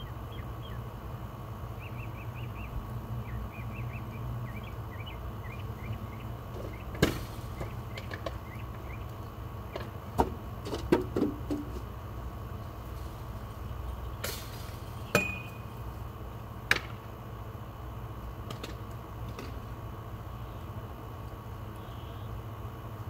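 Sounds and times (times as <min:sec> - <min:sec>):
sharp knocks and clinks: 0:14.2 - 0:15.7.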